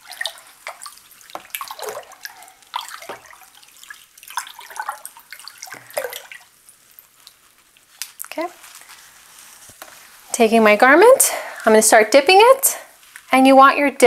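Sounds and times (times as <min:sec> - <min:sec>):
spoon stirring sloshing water: 0:00.0 - 0:10.8.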